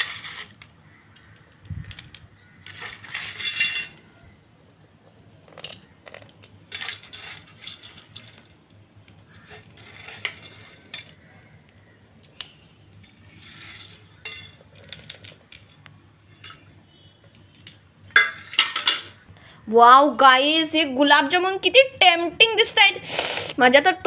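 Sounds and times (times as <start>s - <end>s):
clinks on a steel plate: 2.7s - 4.0s, 14.2s - 15.0s, 18.1s - 19.2s.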